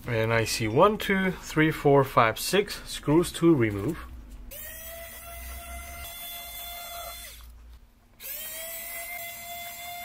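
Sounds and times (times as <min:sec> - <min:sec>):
electric screwdriver motor whining: 0:04.5 - 0:07.5, 0:08.2 - 0:10.0.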